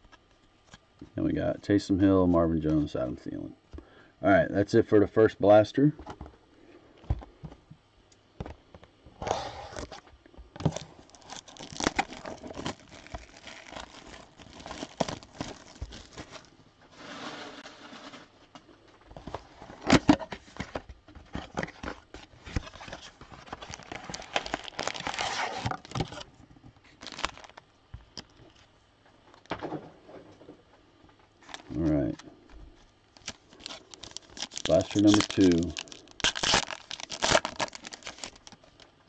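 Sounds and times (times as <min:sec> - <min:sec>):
plastic wrapper crinkling and tearing: 0:10.6 - 0:16.5, 0:21.4 - 0:27.6, 0:33.1 - 0:39.0.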